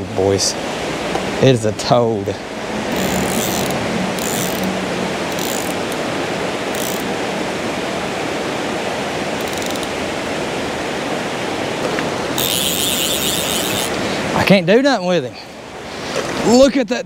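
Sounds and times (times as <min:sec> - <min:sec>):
river rushing: 0:00.0 - 0:16.9
fishing reel drag clicking: 0:02.9 - 0:04.7, 0:05.3 - 0:06.0, 0:06.7 - 0:07.1, 0:09.4 - 0:10.0, 0:12.4 - 0:14.0.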